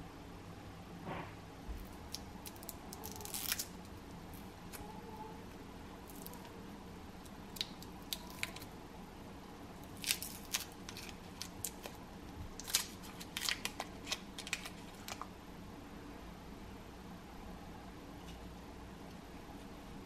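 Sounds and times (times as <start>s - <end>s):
foil wrapper crinkling: 1.9s - 3.9s, 7.5s - 8.7s, 9.8s - 12.0s, 12.6s - 15.3s.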